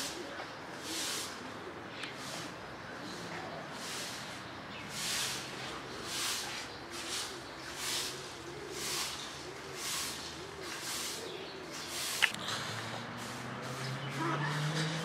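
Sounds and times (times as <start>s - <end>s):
dove cooing: 0.0s - 4.3s, 4.9s - 12.5s.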